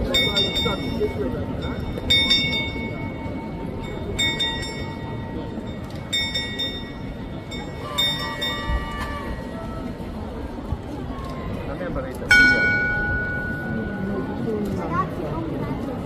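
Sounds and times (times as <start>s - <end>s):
murmur of crowd: 0.0s - 16.0s
clock bell ringing: 12.3s - 14.2s.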